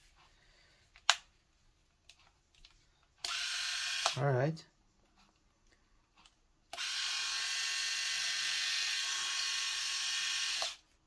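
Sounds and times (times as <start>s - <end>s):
electric shaver whirring: 3.2s - 4.2s, 6.7s - 10.8s.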